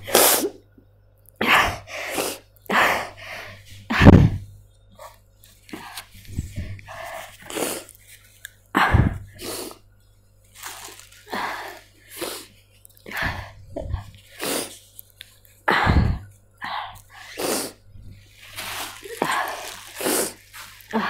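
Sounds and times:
person sniffling and sobbing: 15.6s - 21.0s.

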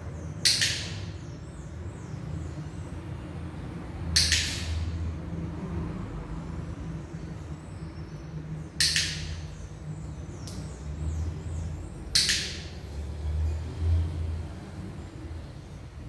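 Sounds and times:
dog-training clicker clicks: 0.5s - 1.0s, 4.2s - 4.8s, 8.8s - 9.4s, 12.1s - 12.7s.

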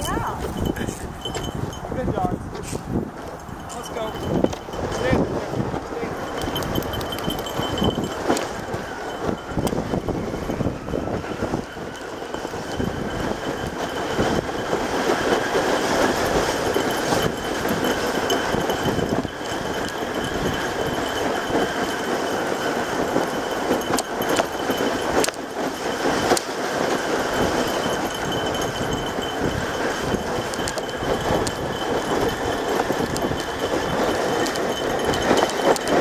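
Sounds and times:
plastic sled scraping over snow: 2.5s - 36.0s
sled knocks: 11.8s - 36.0s.

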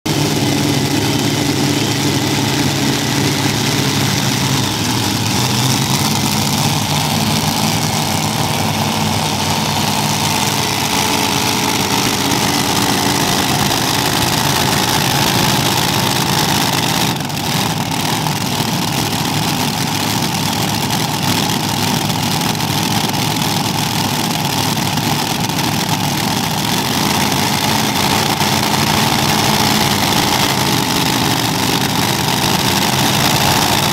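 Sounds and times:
tractor engines idling: 0.0s - 33.9s.

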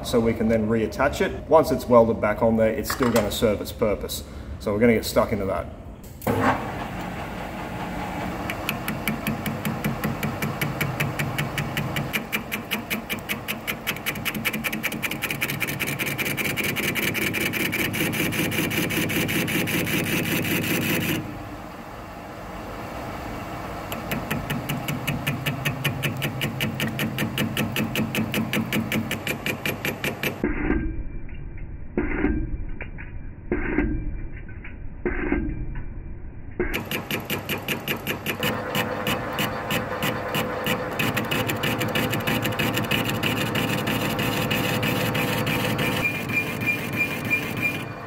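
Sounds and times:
metal lathe cutting: 36.8s - 48.0s.

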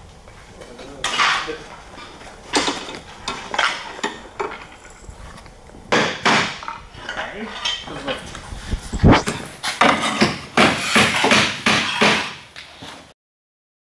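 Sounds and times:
sharp slate knocks: 5.9s - 6.7s, 9.1s - 12.4s.

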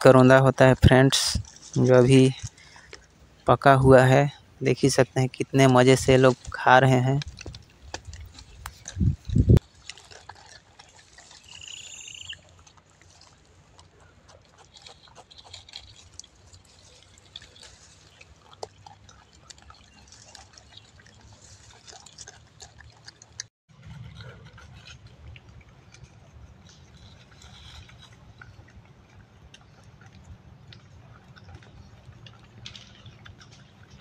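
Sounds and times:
rustling bush and crackling twigs: 0.0s - 5.0s, 5.6s - 34.0s
high animal call: 11.4s - 12.5s.

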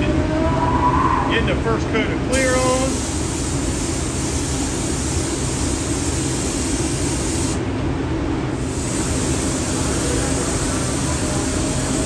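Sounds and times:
paint spray gun hissing: 2.4s - 7.6s, 8.6s - 12.0s.

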